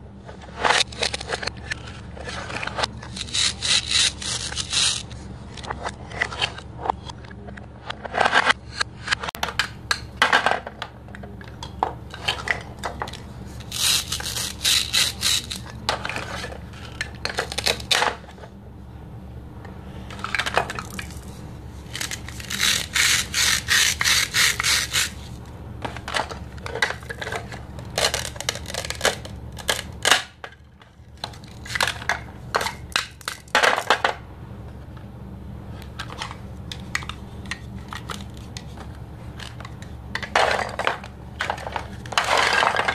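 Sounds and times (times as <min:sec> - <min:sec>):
hard plastic pieces clacking: 0:00.6 - 0:06.6, 0:09.2 - 0:18.3, 0:21.9 - 0:25.2, 0:25.8 - 0:30.6, 0:35.9 - 0:42.9.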